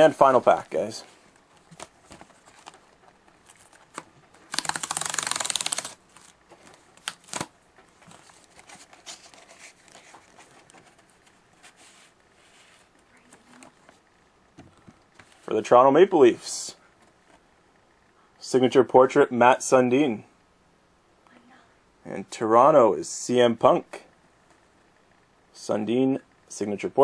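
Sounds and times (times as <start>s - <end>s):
wrapper crinkling: 1.7s - 10.7s
foil pack ripping: 4.5s - 6.3s, 7.0s - 7.5s.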